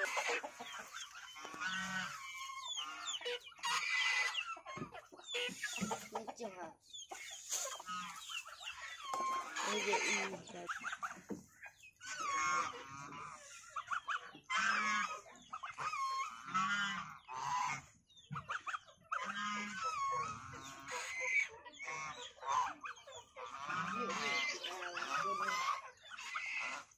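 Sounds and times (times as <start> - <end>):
goose honking: 0.0 - 4.3, 9.0 - 10.6, 12.0 - 13.9, 14.5 - 17.9, 19.2 - 26.9.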